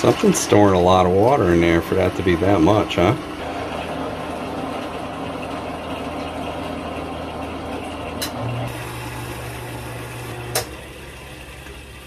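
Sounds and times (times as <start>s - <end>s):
water rushing through pipe: 0.0s - 12.0s
click: 10.5s - 10.7s.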